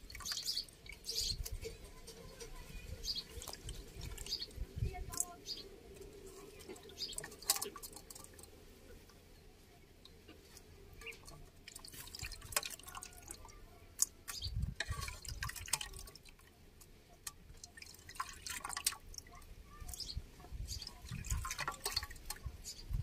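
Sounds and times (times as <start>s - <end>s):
water splashing in a pot: 0.0s - 1.7s, 3.2s - 4.6s, 6.4s - 8.6s, 10.9s - 23.0s
water dripping into metal bowl: 0.0s - 2.5s, 3.2s - 5.4s, 6.4s - 8.6s, 10.0s - 23.0s.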